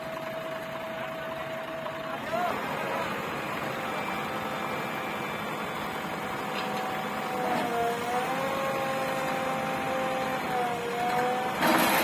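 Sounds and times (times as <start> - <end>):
backhoe engine and hydraulics whine: 0.0 - 12.0.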